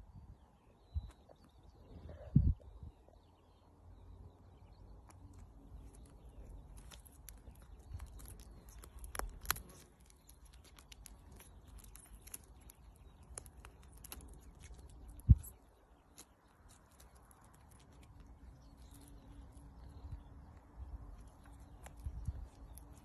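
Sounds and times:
falcon tearing at a carcass: 0:06.4 - 0:15.3.

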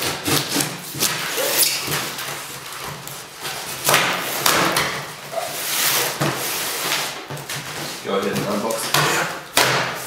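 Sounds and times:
knife cutting packing tape: 0:00.0 - 0:07.8
knocks on cardboard: 0:08.4 - 0:10.0.

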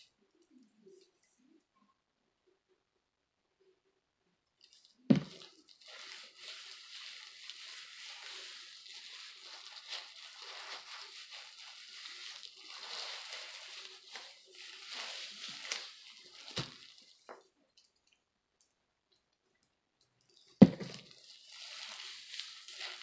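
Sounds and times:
wet squishing of hair: 0:04.6 - 0:17.3, 0:21.2 - 0:23.0
plastic gloves crackling: 0:04.6 - 0:18.2, 0:20.4 - 0:23.0.

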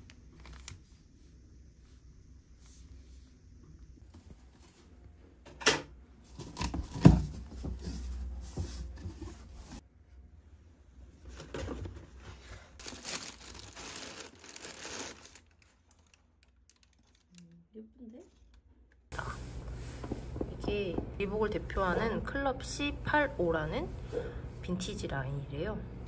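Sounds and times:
tissue paper crinkling: 0:00.3 - 0:01.1, 0:12.8 - 0:17.4.

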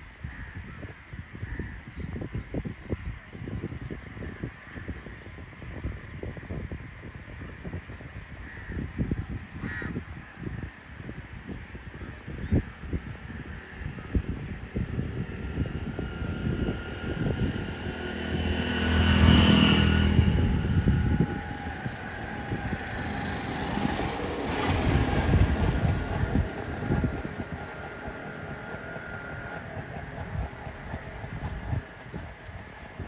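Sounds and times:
steady low rumble: 0:00.0 - 0:33.0
vehicles passing: 0:13.8 - 0:33.0.

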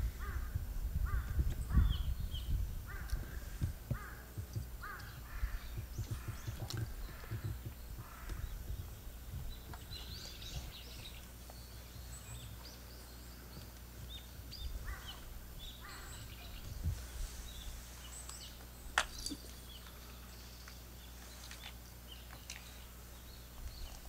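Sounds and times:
low rumble: 0:00.0 - 0:18.1
bird calls and chirps: 0:00.0 - 0:24.0.

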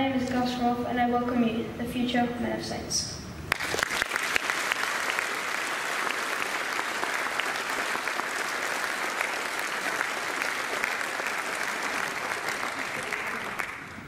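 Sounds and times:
audience clapping: 0:03.5 - 0:14.0.

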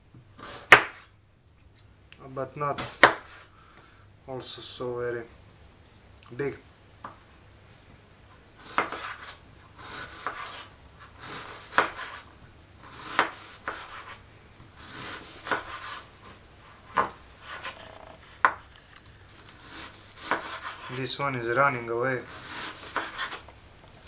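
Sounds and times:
knife cutting onion: 0:00.4 - 0:01.1, 0:08.6 - 0:18.6, 0:19.4 - 0:21.1, 0:22.2 - 0:23.5.

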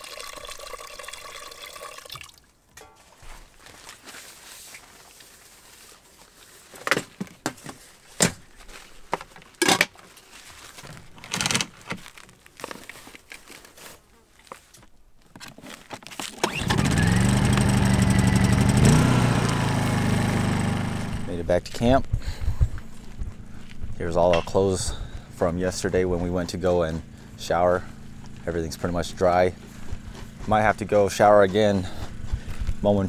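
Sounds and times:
generator engine running: 0:16.4 - 0:21.5, 0:22.2 - 0:33.0.

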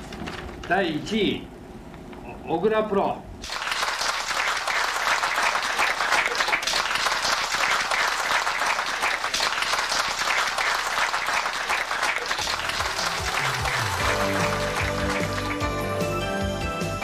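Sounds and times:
audience applause: 0:03.4 - 0:16.2
music: 0:12.5 - 0:17.0.

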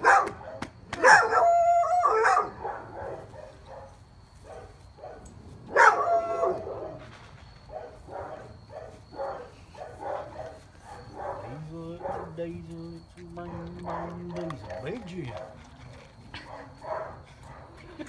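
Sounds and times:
dog barking: 0:00.0 - 0:07.0, 0:07.7 - 0:12.6, 0:13.4 - 0:15.6, 0:16.4 - 0:17.7.

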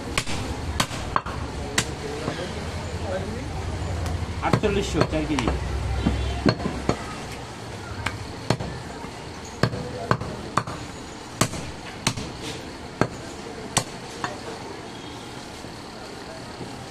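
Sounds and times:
cleaver chopping meat on wood: 0:04.5 - 0:07.0, 0:11.4 - 0:12.3.

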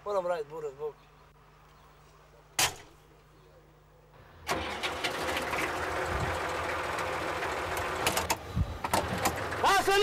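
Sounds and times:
tractor engine starting and running: 0:04.4 - 0:10.0.

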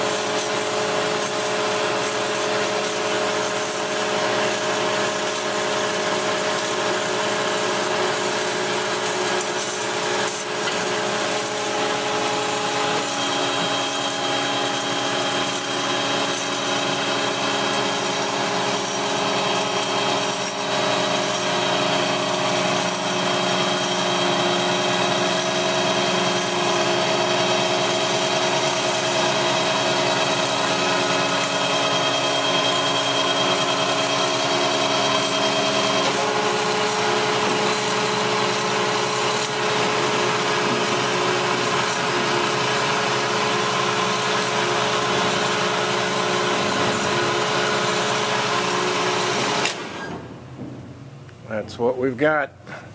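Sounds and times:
bandsaw whining: 0:00.0 - 0:50.3.

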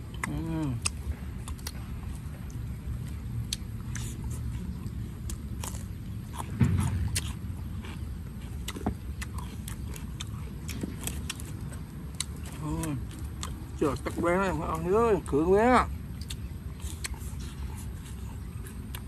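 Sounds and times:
steady low rumble: 0:00.0 - 0:19.0
dull thump: 0:06.5 - 0:07.4.

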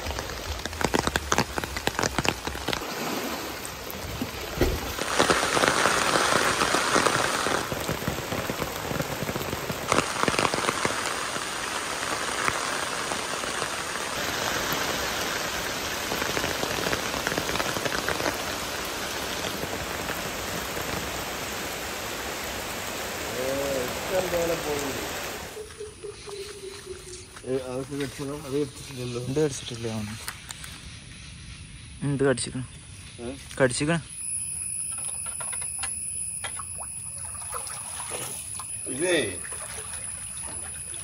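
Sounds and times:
heavy rain on pond water: 0:00.0 - 0:25.6, 0:34.9 - 0:41.0
drip ticks: 0:34.9 - 0:37.7.

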